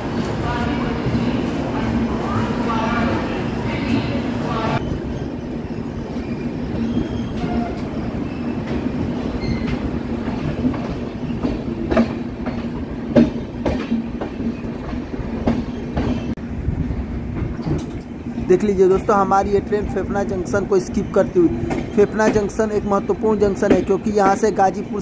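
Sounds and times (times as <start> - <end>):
rumble of train wheels on rail: 0.0 - 25.0
clacks over rail joints: 6.8 - 16.4, 17.3 - 20.0, 21.5 - 25.0.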